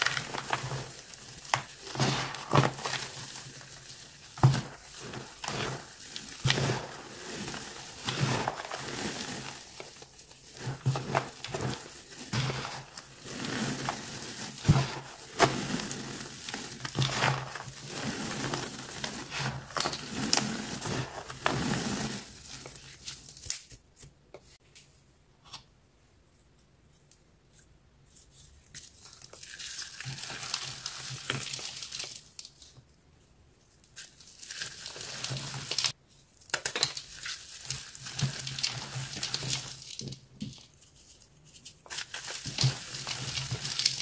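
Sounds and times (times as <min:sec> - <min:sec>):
hands crushing gritty powder: 0:00.0 - 0:24.1, 0:34.0 - 0:44.0.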